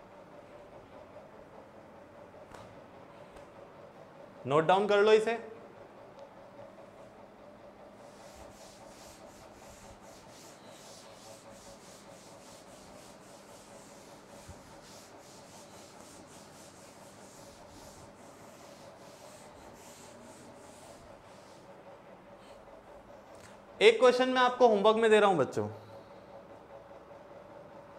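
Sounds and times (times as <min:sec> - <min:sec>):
cloth wiping chalkboard: 0:07.9 - 0:21.8.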